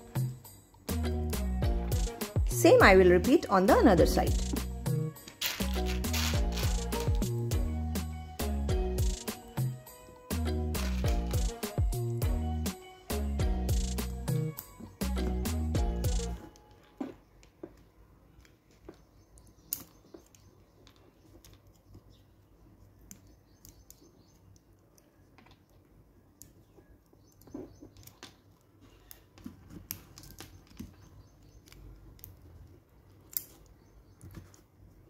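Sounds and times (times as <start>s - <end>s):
plastic pieces clicking together: 5.2s - 7.3s, 27.4s - 34.6s.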